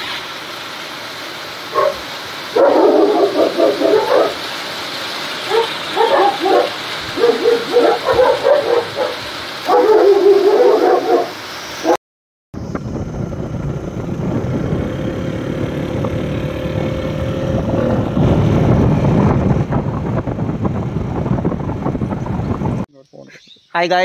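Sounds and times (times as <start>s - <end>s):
dog barking: 1.7s - 4.4s, 5.4s - 12.0s.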